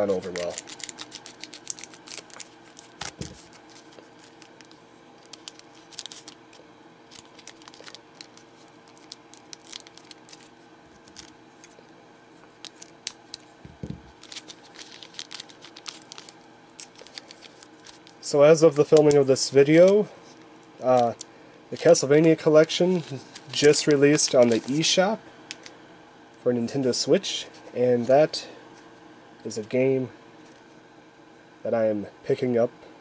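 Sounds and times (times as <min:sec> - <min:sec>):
foil wrapper crinkling: 0:00.0 - 0:11.9, 0:12.5 - 0:20.0, 0:20.8 - 0:25.7
cards being handled: 0:00.0 - 0:24.9.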